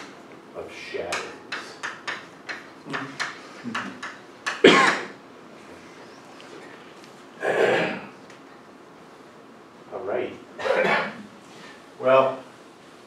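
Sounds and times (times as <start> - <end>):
chalk tapping on a blackboard: 1.1 - 4.6.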